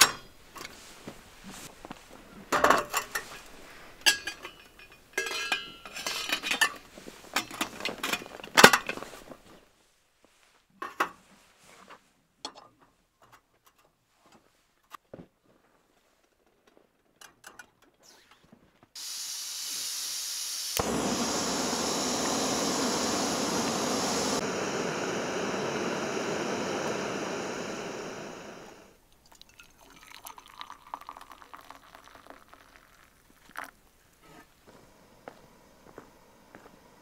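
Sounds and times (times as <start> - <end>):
gas burner hissing: 19.0 - 29.0, 34.6 - 37.0
gas hissing from valve: 19.0 - 29.0
coffee pouring into a mug: 29.2 - 33.8.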